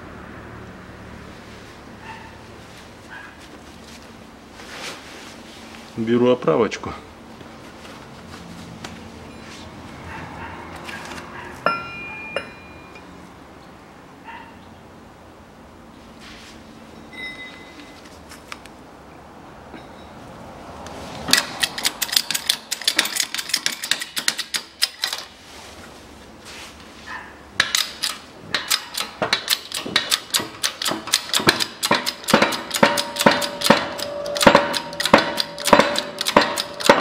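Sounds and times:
faint metallic ring: 11.6s - 13.2s, 16.9s - 18.0s, 19.7s - 20.2s, 32.5s - 37.0s
shop press metallic clicking: 21.3s - 25.3s, 27.6s - 37.0s.

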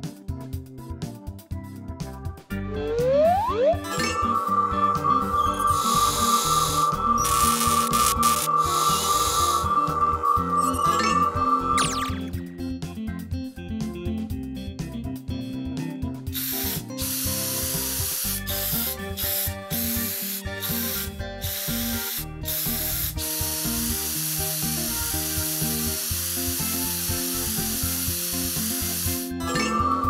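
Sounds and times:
background music: 0.0s - 30.0s
spray paint can hissing: 5.4s - 9.7s, 16.4s - 29.3s.

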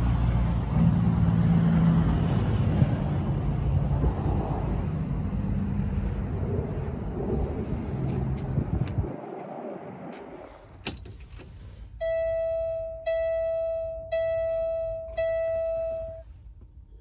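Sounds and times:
wind on microphone: 0.6s - 10.8s
dashboard warning chime: 12.0s - 16.4s.

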